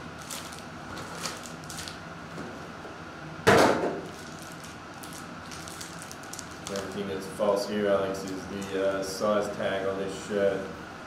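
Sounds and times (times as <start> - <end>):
foil packs crinkling: 0.0 - 2.0, 4.0 - 7.2, 7.9 - 9.1.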